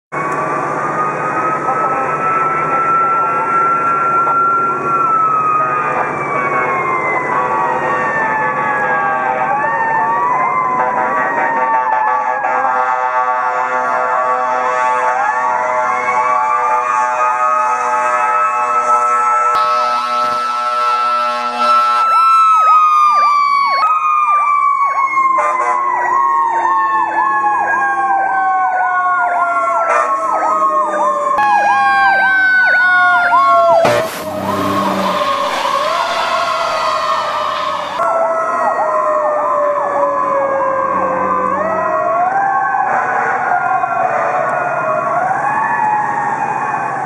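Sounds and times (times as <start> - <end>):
electronic siren yelp: 0.2 - 47.0
truck passing rush: 24.8 - 47.0.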